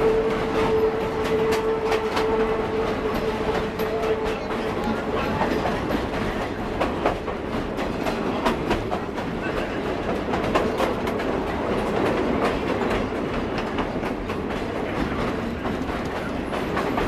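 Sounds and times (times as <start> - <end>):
railway car rumbling and rattling: 0.0 - 17.0
wheels clacking on rails: 0.0 - 17.0.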